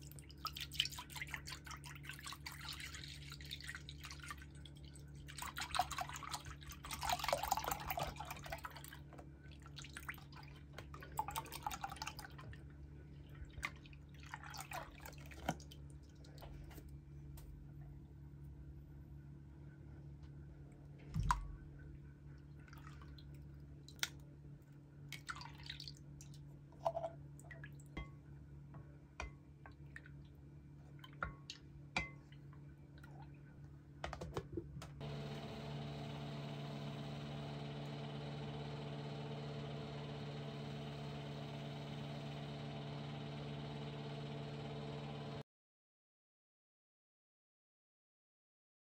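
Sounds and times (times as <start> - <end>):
microwave oven humming: 35.0 - 45.4.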